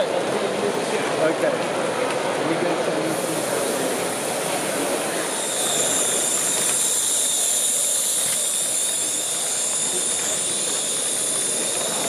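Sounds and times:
model train wheels on rails: 0:00.0 - 0:12.0
thin high whine: 0:04.8 - 0:12.0.

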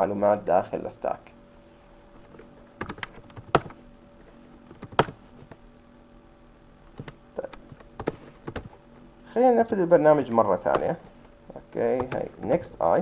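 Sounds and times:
keyboard typing clicks: 0:02.8 - 0:03.8, 0:04.8 - 0:05.2, 0:07.0 - 0:08.7, 0:10.6 - 0:11.0, 0:11.9 - 0:12.6.

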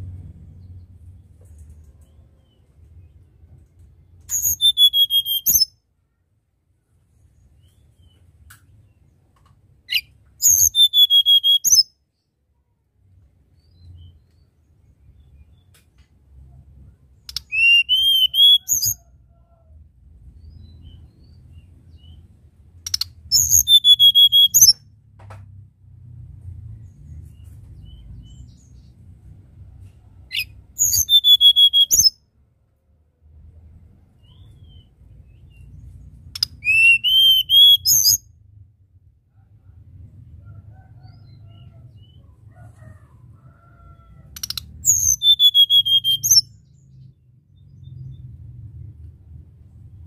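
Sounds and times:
bird singing whistled notes: 0:04.2 - 0:05.8, 0:09.9 - 0:12.0, 0:17.2 - 0:19.1, 0:22.9 - 0:24.8, 0:30.3 - 0:32.2, 0:34.2 - 0:38.3, 0:44.4 - 0:47.2.

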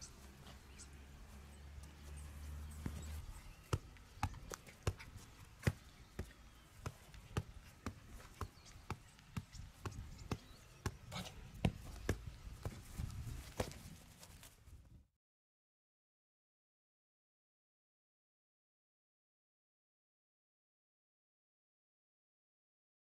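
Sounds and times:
football thudding off feet: 0:03.6 - 0:14.0.

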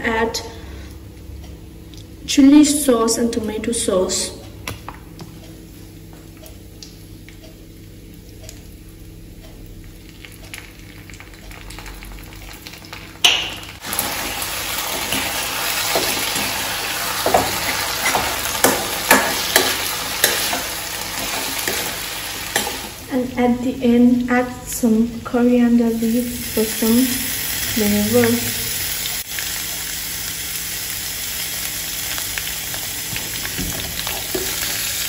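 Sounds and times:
food sizzling in a pan: 0:09.9 - 0:23.4, 0:25.7 - 0:35.0
metal spoon scraping a pan: 0:17.2 - 0:22.9.

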